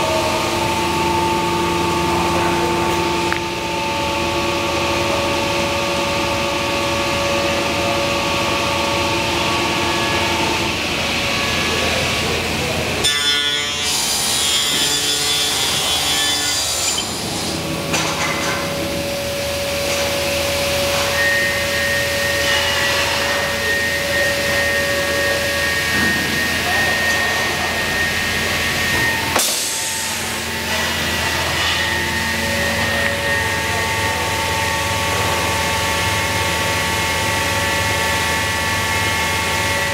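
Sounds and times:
panel saw cutting wood: 0:13.0 - 0:17.6.

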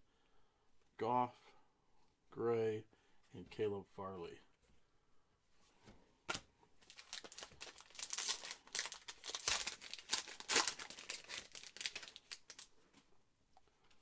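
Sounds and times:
foil pack crackling and rustling: 0:06.8 - 0:12.7.

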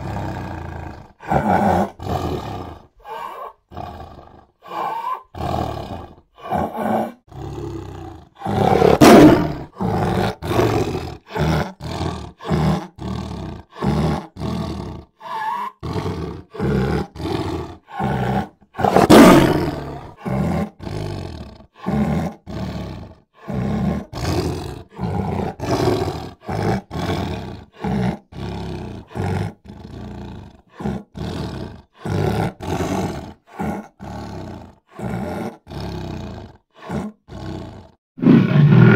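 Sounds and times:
lion full roars: 0:00.0 - 0:38.9
lion grunting roars: 0:00.0 - 0:38.9.

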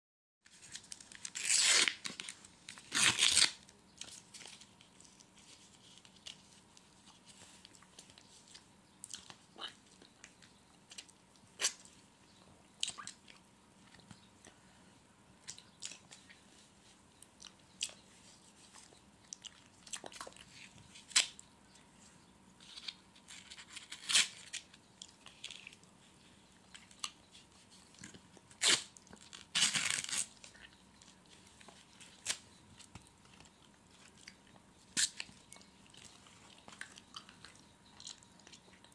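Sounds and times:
eating crunches and mouth clicks: 0:12.8 - 0:14.1, 0:18.7 - 0:21.4.

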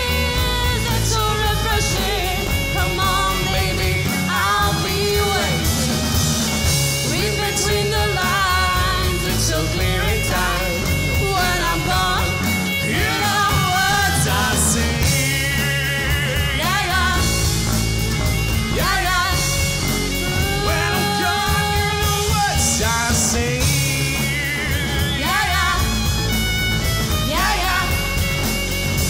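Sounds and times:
man singing: 0:00.0 - 0:06.1, 0:07.0 - 0:17.8, 0:18.6 - 0:26.0, 0:27.2 - 0:28.3
rock band playing: 0:00.0 - 0:29.0.

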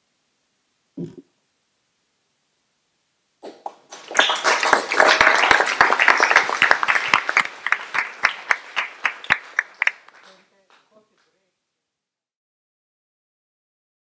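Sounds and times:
audience applauding: 0:03.4 - 0:11.3.

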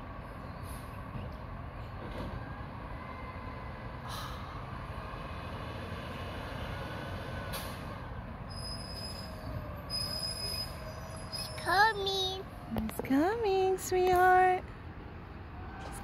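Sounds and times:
air brakes hissing: 0:00.6 - 0:01.1, 0:04.0 - 0:11.7.

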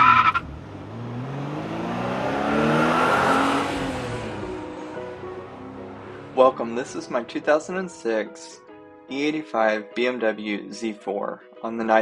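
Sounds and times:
car engine accelerating: 0:00.0 - 0:07.3.

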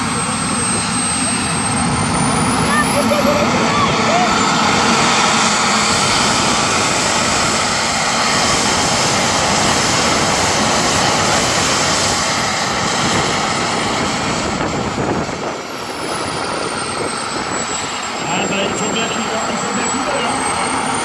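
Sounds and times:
jet turbine roaring with high whine: 0:00.0 - 0:21.0.

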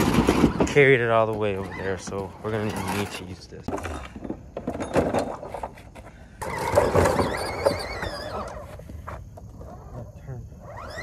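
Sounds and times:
plastic toy rattling over pavers: 0:00.0 - 0:08.9
wavering high squeal: 0:09.6 - 0:11.0.

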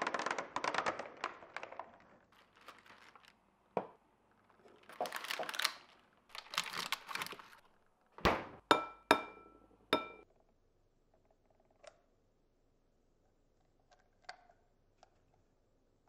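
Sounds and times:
plastic packaging rustling: 0:00.0 - 0:07.8
crockery knocks with ringing: 0:08.7 - 0:10.2.

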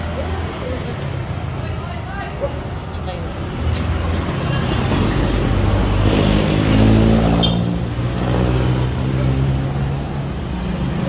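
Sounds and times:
motorcycle engine idling and revving: 0:02.5 - 0:11.0.

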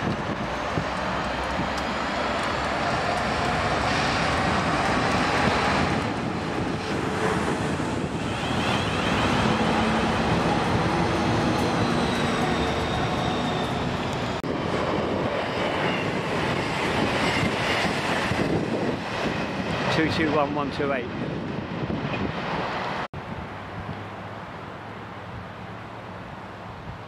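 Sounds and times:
diesel train passing: 0:00.0 - 0:27.0
freight train passing: 0:00.0 - 0:27.0
electric train passing: 0:00.1 - 0:19.0.

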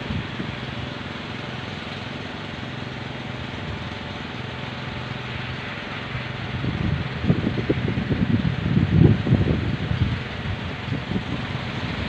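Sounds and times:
rushing wind: 0:00.0 - 0:00.9, 0:05.0 - 0:12.0
wind propellers droning hum: 0:00.0 - 0:12.0.

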